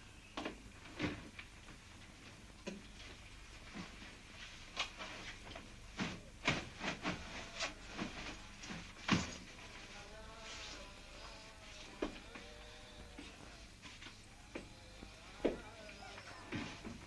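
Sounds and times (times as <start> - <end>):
faint music: 0.0 - 17.0
fabric rustling: 3.5 - 12.2.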